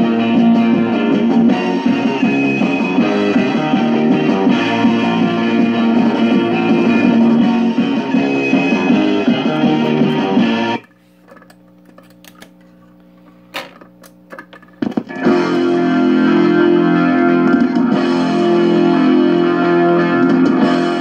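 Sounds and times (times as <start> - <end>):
distorted electric guitar music: 0.0 - 10.9, 12.1 - 21.0
low hum from record player: 0.0 - 17.9
record changer mechanism clunking: 13.5 - 15.3.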